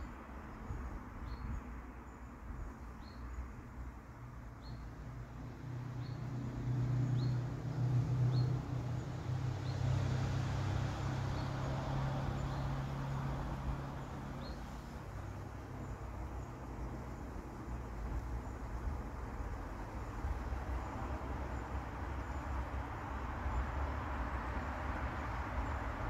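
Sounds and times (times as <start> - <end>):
vehicle engine passing: 5.3 - 16.8
bird chirping: 7.0 - 7.4.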